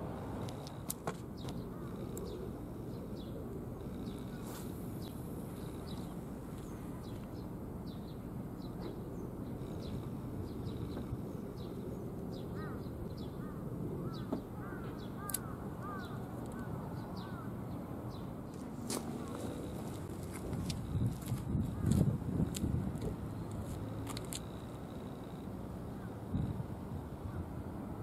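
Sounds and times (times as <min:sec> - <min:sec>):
birds chirping: 0:00.7 - 0:21.0
repeated arched bird calls: 0:01.4 - 0:18.3.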